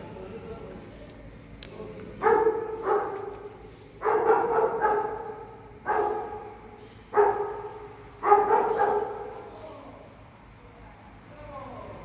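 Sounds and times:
dog barking: 0:02.2 - 0:03.3, 0:04.0 - 0:09.4.

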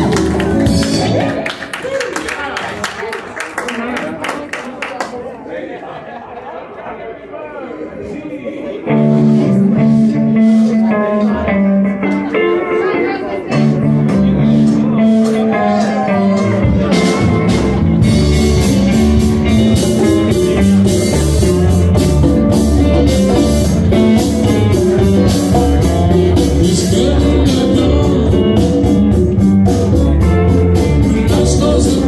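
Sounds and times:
live rock and roll band: 0:00.0 - 0:02.9, 0:08.8 - 0:32.0
person singing: 0:08.8 - 0:32.0
steady drum beat: 0:13.8 - 0:32.0.

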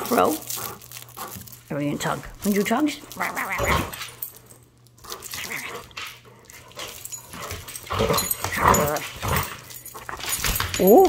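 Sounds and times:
dog vocalizing during play: 0:05.1 - 0:10.4.

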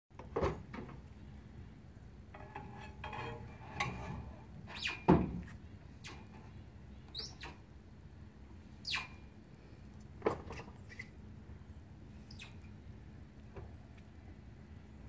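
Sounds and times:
metal clanks and knocks: 0:02.3 - 0:05.5
short high squeak: 0:04.7 - 0:05.1, 0:06.0 - 0:06.4, 0:07.1 - 0:07.6, 0:08.8 - 0:09.2, 0:10.8 - 0:11.2, 0:12.3 - 0:12.6.

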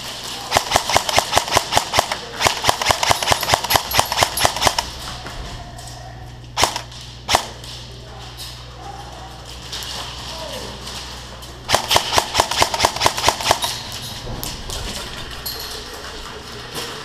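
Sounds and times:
airsoft gun shots: 0:00.4 - 0:04.9, 0:06.6 - 0:07.6, 0:11.7 - 0:13.8.

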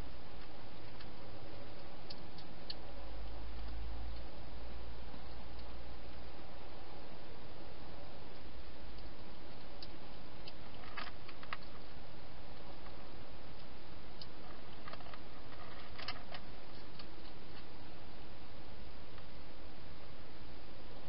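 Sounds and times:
steady hiss: 0:00.0 - 0:21.0
hedgehog chewing and crunching: 0:00.3 - 0:17.8.

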